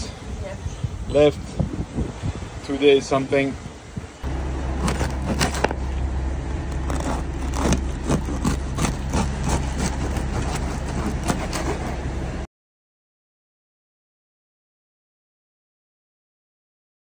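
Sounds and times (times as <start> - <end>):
steady low hum: 3.9 - 12.5
bread knife sawing crusty loaf: 4.7 - 5.8, 6.7 - 12.1.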